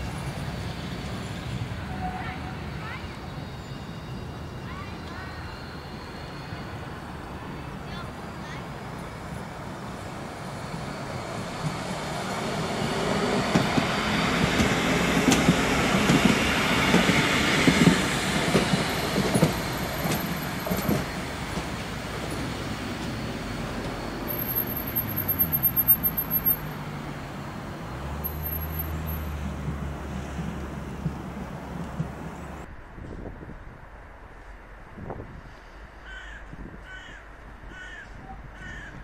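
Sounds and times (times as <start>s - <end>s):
tram wheels rumbling on rails: 0.0s - 36.0s.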